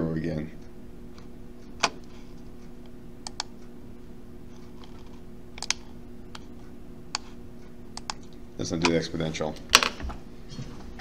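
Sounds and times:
low electrical hum: 0.0 - 11.0
mouse and key clicks: 3.2 - 3.6, 5.6 - 5.8, 8.0 - 8.2.

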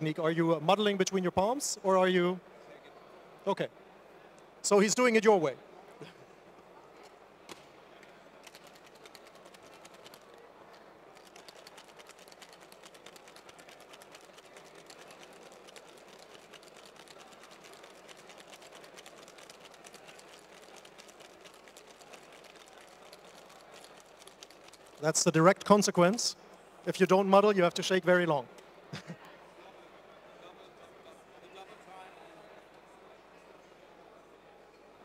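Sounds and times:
ice rattling in cocktail shaker: 11.2 - 25.0.

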